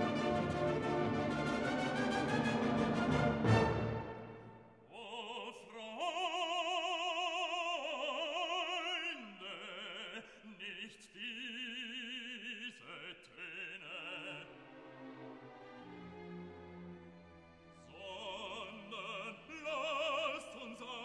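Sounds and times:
orchestral chord: 0.0s - 4.6s
operatic voice singing: 4.9s - 14.8s, 17.8s - 21.0s.

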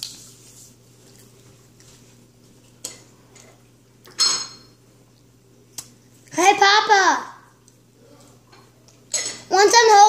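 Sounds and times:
cutlery clinking on a ceramic plate: 4.1s - 4.7s, 9.1s - 9.5s.

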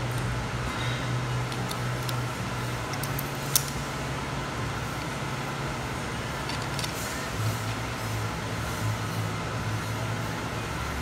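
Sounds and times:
steady low hum: 0.0s - 11.0s
metal parts clicking: 1.4s - 2.2s, 2.9s - 3.8s, 6.4s - 7.0s.

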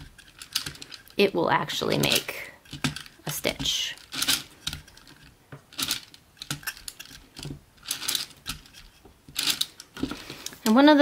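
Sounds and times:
knitting machine clicking and rattling: 0.0s - 11.0s.

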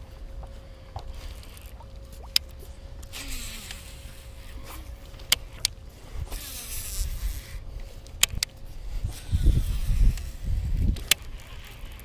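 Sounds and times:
fishing reel whirring: 3.0s - 4.9s, 6.2s - 12.0s
wind rumble on microphone: 5.9s - 12.0s
reel cranking with clicks: 9.6s - 12.0s.

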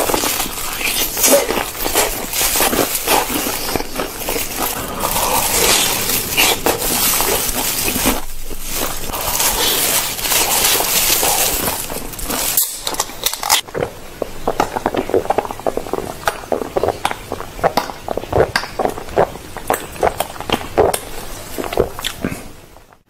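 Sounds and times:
loud crunching of fried food: 0.0s - 13.8s.

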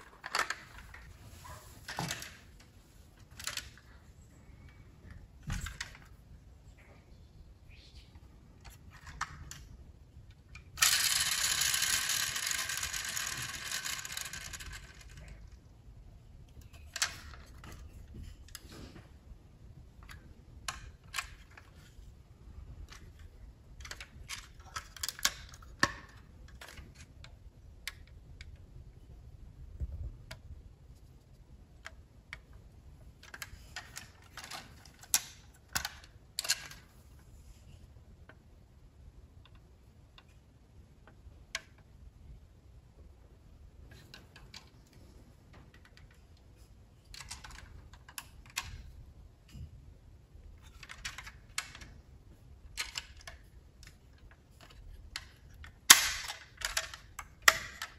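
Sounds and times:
small clicks of model car parts: 1.9s - 4.0s, 8.2s - 15.7s, 16.5s - 19.0s, 20.0s - 22.0s, 22.8s - 28.6s, 33.2s - 38.4s, 39.4s - 42.0s, 43.9s - 49.7s, 50.6s - 52.0s, 52.6s - 57.9s.

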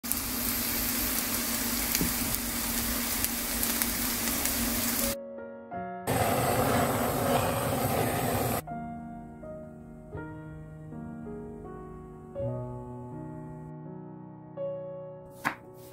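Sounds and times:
pancake sizzling in oil: 0.0s - 5.2s
piano phrase: 5.0s - 15.9s.

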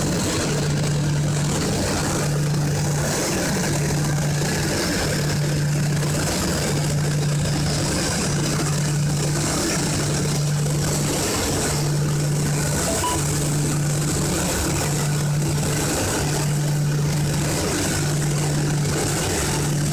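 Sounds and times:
low machine hum: 0.0s - 19.9s
machine noise: 11.3s - 15.8s.

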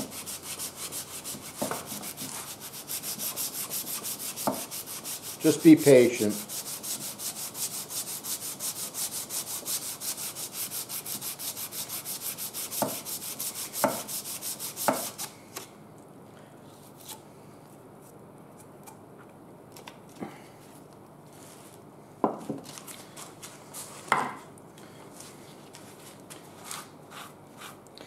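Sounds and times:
sandpaper rubbing on metal: 0.0s - 15.3s.

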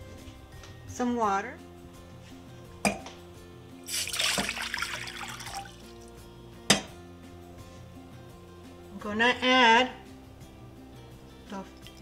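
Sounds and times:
water splashing into saucepan: 3.8s - 5.8s.

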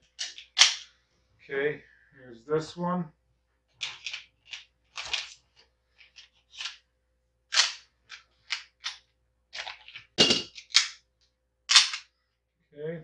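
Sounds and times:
pistol parts clicking and clacking: 0.0s - 0.9s, 3.7s - 5.4s, 6.0s - 6.8s, 7.5s - 11.1s, 11.7s - 12.2s.

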